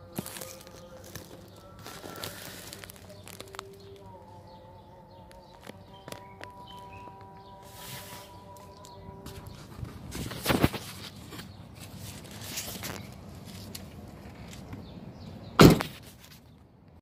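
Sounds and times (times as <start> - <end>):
car door shutting: 15.6 - 16.0.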